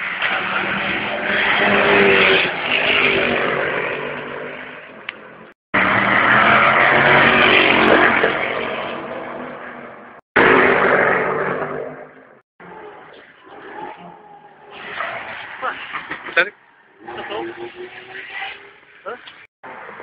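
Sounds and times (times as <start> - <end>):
race cars passing at speed: 0.0 - 19.0.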